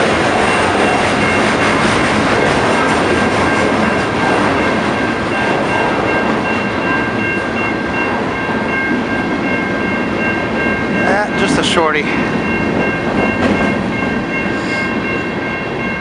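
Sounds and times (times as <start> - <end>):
train wheels rumbling on rails: 0.0 - 16.0
high-pitched ringing tone: 3.5 - 16.0.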